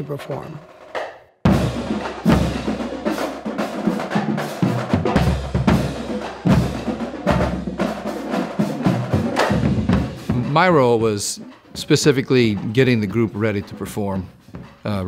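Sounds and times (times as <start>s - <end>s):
snare drum strikes: 0.9s - 15.0s
bass drum hits: 9.1s - 11.0s.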